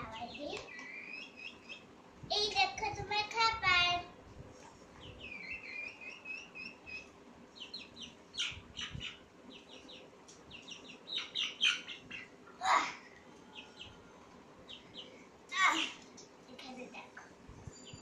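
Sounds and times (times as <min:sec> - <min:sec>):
young chicken peeping: 0:00.0 - 0:01.9, 0:04.9 - 0:16.1.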